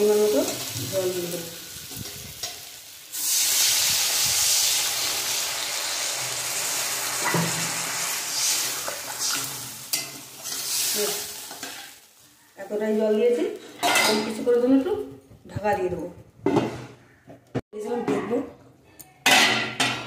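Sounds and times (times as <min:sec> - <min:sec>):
water hissing in hot oil: 0:00.0 - 0:12.2.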